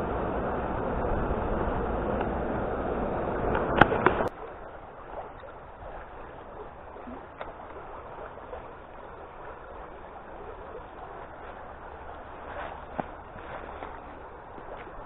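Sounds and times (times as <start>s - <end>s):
creek water babbling over stones: 3.4s - 15.0s.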